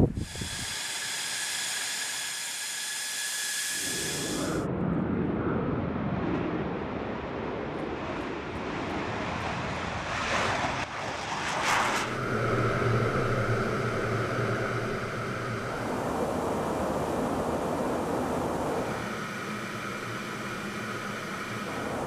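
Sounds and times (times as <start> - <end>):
jet cockpit drone: 0.0 - 5.9, 11.4 - 22.0
jet engine roaring on takeoff: 0.0 - 22.0.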